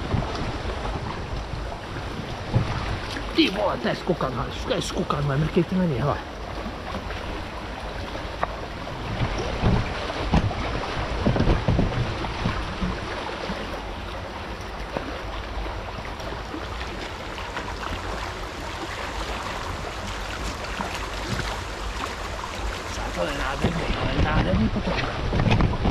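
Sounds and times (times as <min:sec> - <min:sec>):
low thumps: 0:00.0 - 0:03.9, 0:08.4 - 0:13.1
river water rushing: 0:00.0 - 0:25.9
wind buffeting microphone: 0:00.0 - 0:25.9.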